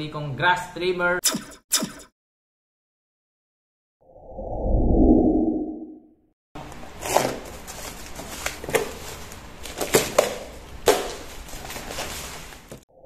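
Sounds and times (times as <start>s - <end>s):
knife slitting tape and cardboard: 7.0s - 9.0s.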